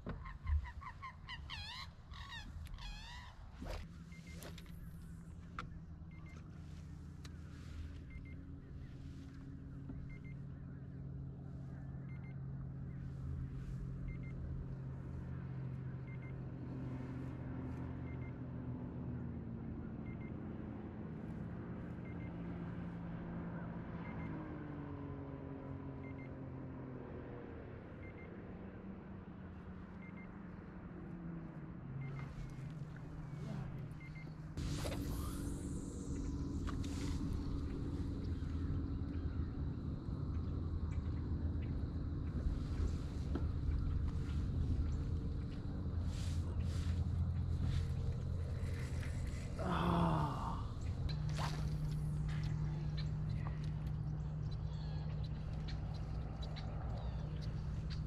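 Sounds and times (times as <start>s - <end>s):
drive motor humming: 32.0s - 58.0s.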